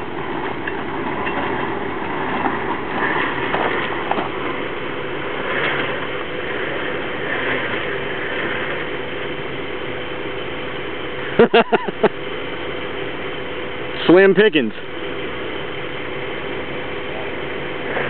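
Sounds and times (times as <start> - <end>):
engine idling: 0.0 - 18.0
winch drum whirring: 0.0 - 18.0.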